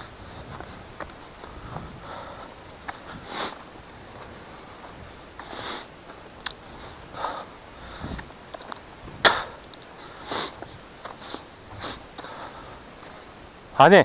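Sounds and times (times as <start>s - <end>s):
footsteps crunching on stony soil: 0.0s - 13.6s
sharp crack: 8.6s - 9.9s.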